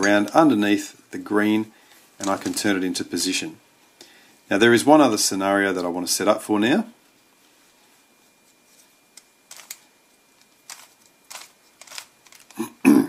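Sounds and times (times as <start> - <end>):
plastic cube clicks: 9.5 - 9.8, 10.7 - 12.6.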